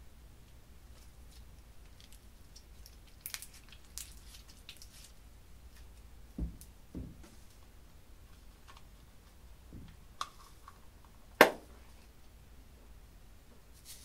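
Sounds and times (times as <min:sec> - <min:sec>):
slime squishing and crackling: 0:01.3 - 0:05.2.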